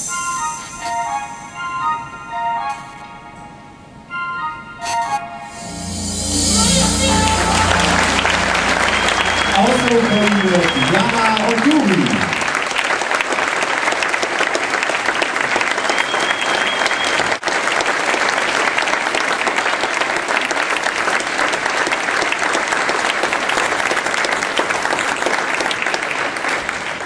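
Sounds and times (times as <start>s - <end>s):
audience applauding: 5.7s - 27.0s.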